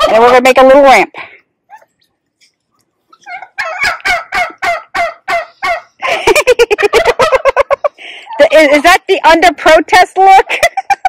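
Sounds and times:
turkeys gobbling: 1.7 - 8.9.

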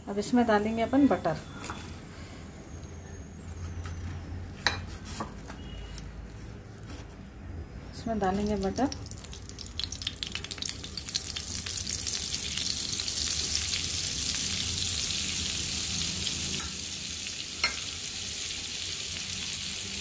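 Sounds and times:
butter sizzling in hot oil: 8.4 - 20.0.

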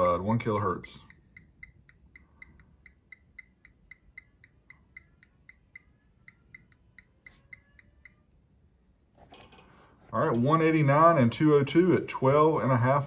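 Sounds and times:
faint rapid ticking: 0.0 - 8.2.

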